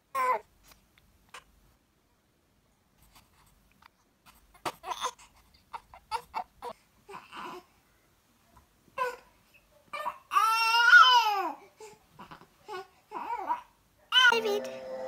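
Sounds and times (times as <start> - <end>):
baby crying: 9.9 - 11.6, 12.2 - 15.0.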